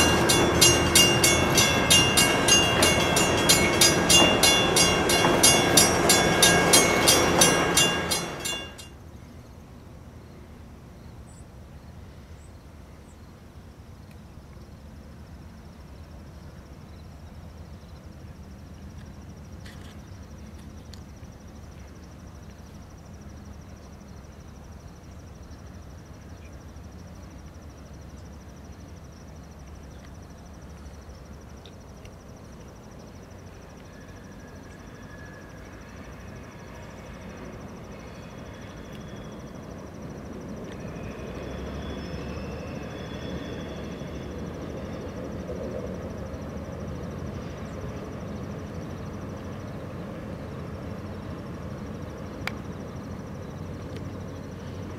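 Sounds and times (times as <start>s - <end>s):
thin high tone: 0.0s - 8.9s
distant train rumbling past: 0.0s - 9.0s, 27.2s - 54.9s.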